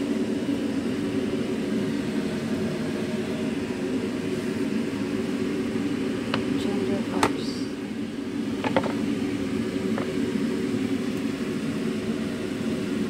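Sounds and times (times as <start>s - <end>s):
steady droning hum: 0.0s - 13.0s.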